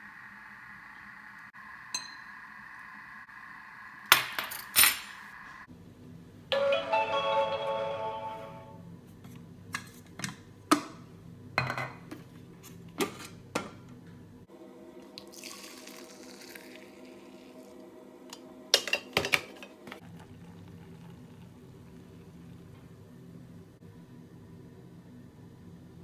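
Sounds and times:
liquid pouring and splashing: 0:15.2 - 0:17.8, 0:20.0 - 0:22.7.

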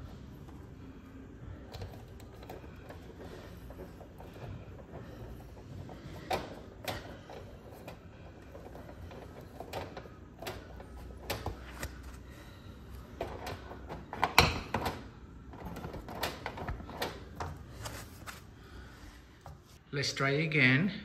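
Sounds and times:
wire nuts clicking and scraping: 0:01.5 - 0:12.2.

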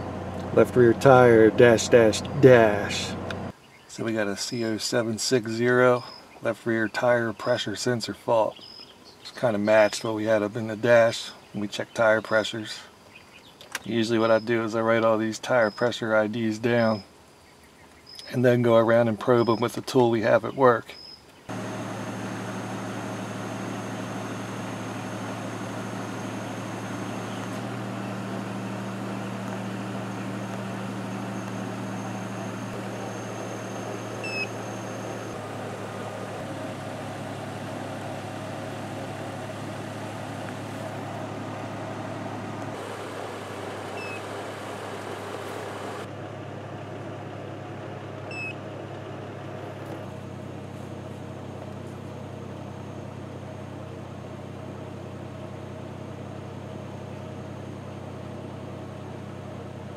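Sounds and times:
low mechanical motor hum: 0:00.0 - 0:04.2, 0:21.5 - 0:59.9.

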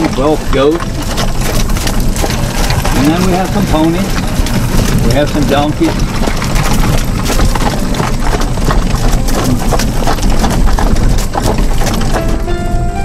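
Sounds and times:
horse hooves clip-clopping: 0:00.0 - 0:13.0
wheels rattling over gravel: 0:00.0 - 0:13.0
music: 0:12.2 - 0:13.0.

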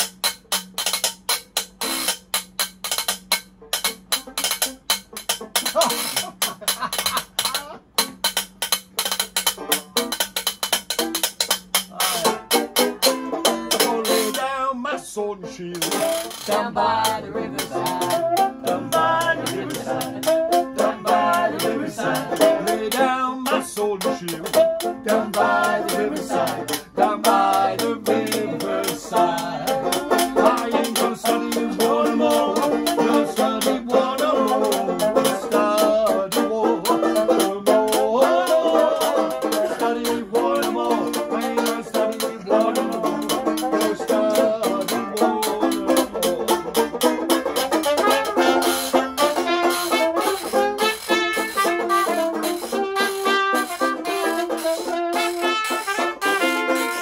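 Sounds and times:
strummed banjo: 0:00.0 - 0:57.0
washboard tapping rhythm: 0:00.0 - 0:57.0
muted trumpet melody: 0:47.8 - 0:57.0.

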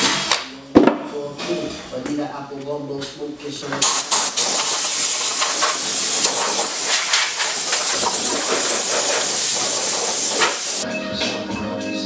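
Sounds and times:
gas torch flame hissing: 0:03.8 - 0:10.8.

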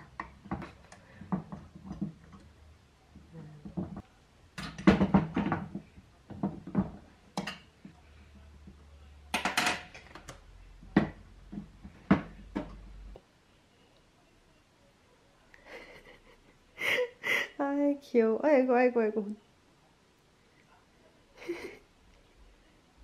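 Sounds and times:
hard objects knocking: 0:00.0 - 0:02.5, 0:03.1 - 0:04.0, 0:04.6 - 0:07.7, 0:08.6 - 0:13.0.

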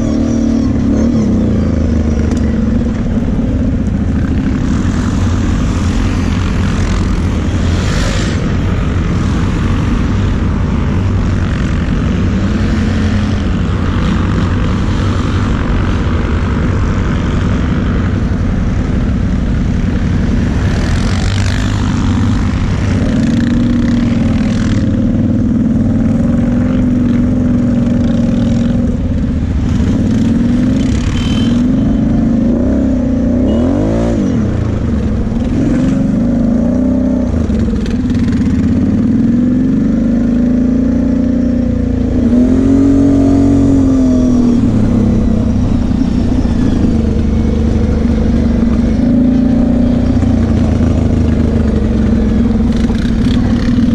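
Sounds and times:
atv engine revving: 0:20.4 - 0:53.9.

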